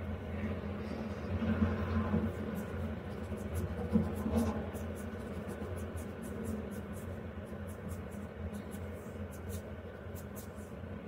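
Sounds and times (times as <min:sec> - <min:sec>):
steady low hum: 0:00.0 - 0:11.0
stylus scratching on glass: 0:02.2 - 0:10.7.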